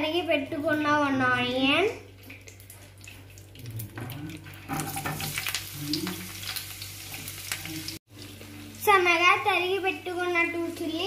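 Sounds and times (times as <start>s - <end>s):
onions sizzling in hot oil: 4.7s - 11.0s.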